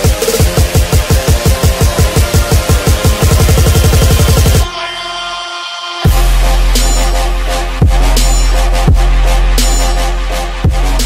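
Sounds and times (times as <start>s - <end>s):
fast kick drum beat: 0.0s - 4.6s.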